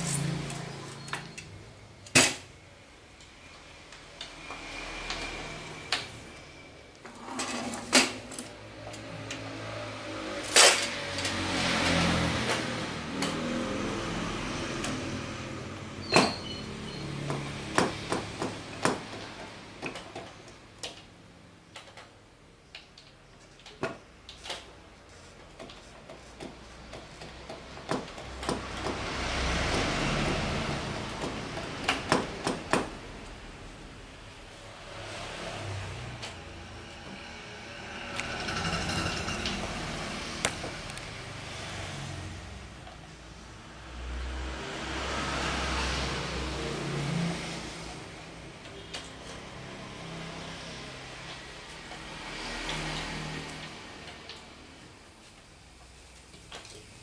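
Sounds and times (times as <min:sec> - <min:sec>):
metal clanks and knocks: 0:38.2 - 0:40.8.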